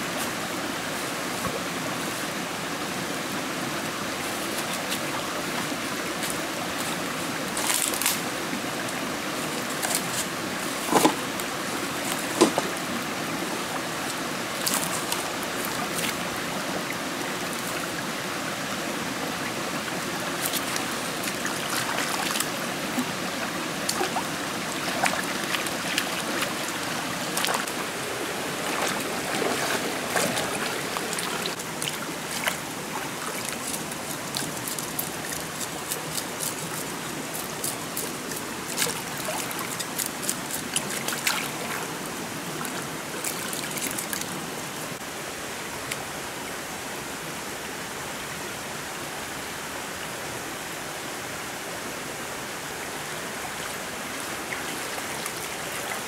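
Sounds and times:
forest stream flowing: 0.0 - 56.0.

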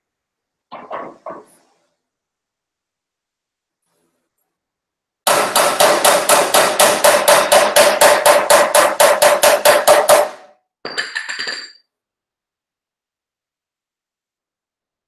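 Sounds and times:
rapid hammering on sheet metal: 5.2 - 10.5
metal hand tools clinking: 10.9 - 11.8.

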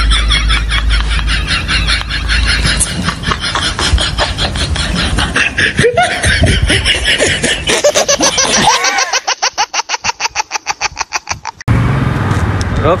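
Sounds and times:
pulsing laughter: 0.0 - 11.7.

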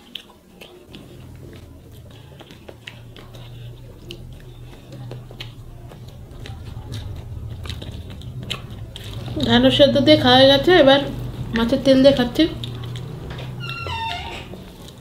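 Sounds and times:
fingers mixing rice: 0.0 - 9.6
chewing with mouth clicks: 0.0 - 13.8, 14.5 - 15.0
steady low hum: 0.8 - 15.0.

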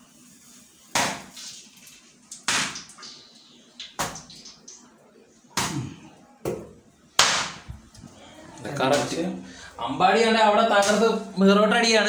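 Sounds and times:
dough slapped on work surface: 0.9 - 1.3, 2.5 - 2.9, 5.6 - 7.7.

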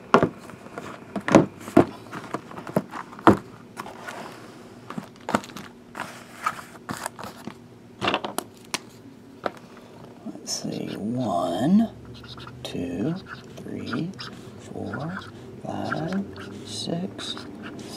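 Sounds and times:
plastic wrap rustling: 1.6 - 7.5.

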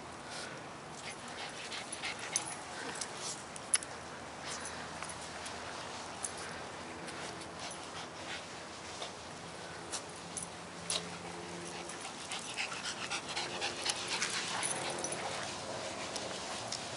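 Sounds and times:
dog panting: 1.0 - 3.1, 10.9 - 16.9.

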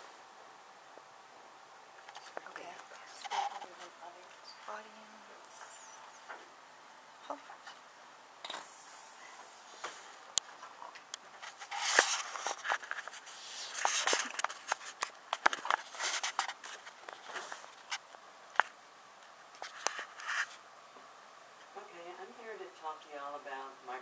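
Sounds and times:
scraping against microphone: 11.4 - 18.0, 19.6 - 20.6.

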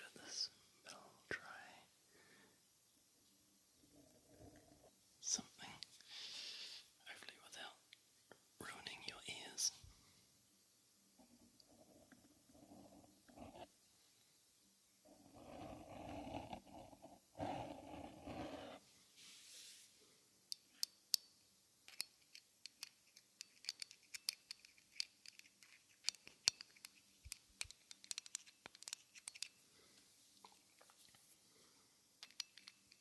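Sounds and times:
breathy hiss: 0.0 - 2.7, 5.2 - 7.6, 15.0 - 20.4
throaty growl: 15.1 - 18.8.

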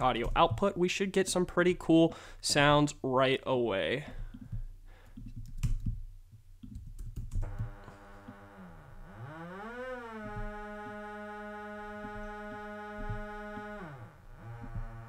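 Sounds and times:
computer clicks and key taps: 4.2 - 6.0, 6.6 - 7.8
synthesizer tone sliding in pitch: 7.8 - 15.0.

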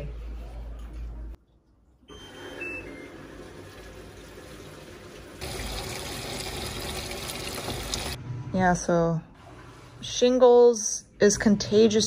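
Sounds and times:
water running into washing machine: 3.0 - 8.2.

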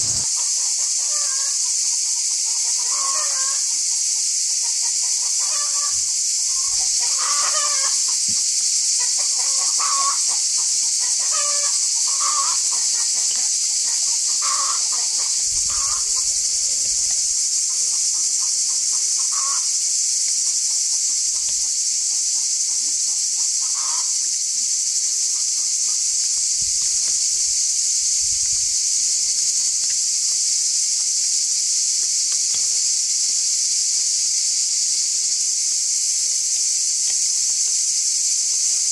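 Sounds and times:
chickens clucking: 0.0 - 19.8
high-pitched insect drone: 0.0 - 38.9.

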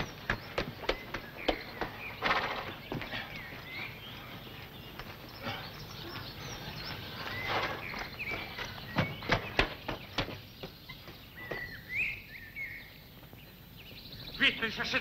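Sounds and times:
hoof clops: 0.0 - 11.8
faint bird chirps: 0.0 - 15.0.

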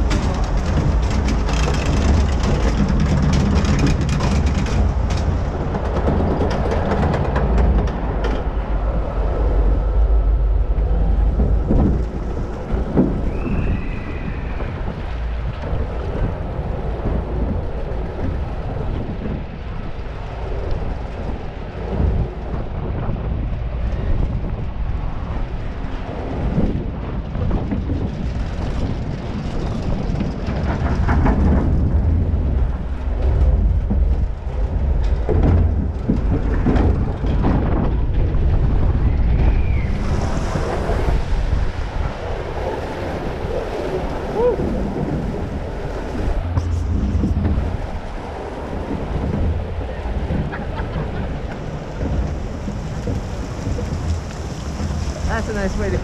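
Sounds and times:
low rumble: 0.0 - 56.0
wind buffeting microphone: 0.0 - 56.0
rushing flowing water: 29.7 - 56.0.

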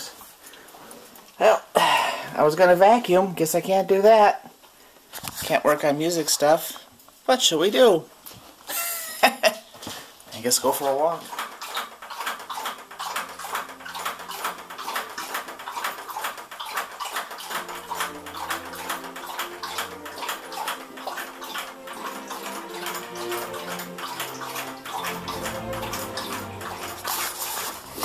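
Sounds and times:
dog lapping water: 9.9 - 28.0
low sustained musical notes: 17.5 - 28.0.

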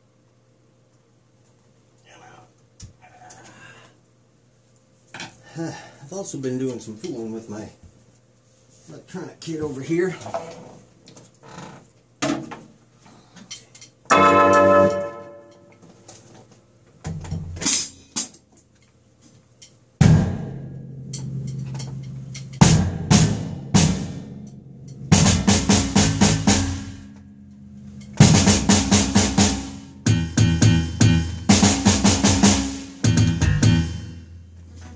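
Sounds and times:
electronic drum hits: 20.0 - 34.9.

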